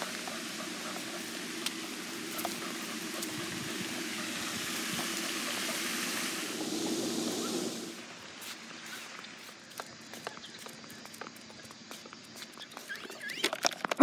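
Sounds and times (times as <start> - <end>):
fountain water hissing: 0.0 - 13.5.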